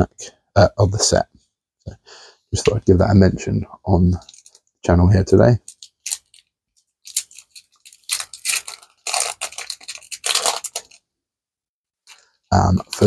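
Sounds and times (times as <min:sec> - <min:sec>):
foil wrapper crinkling and tearing: 0:05.7 - 0:11.0, 0:12.1 - 0:13.0.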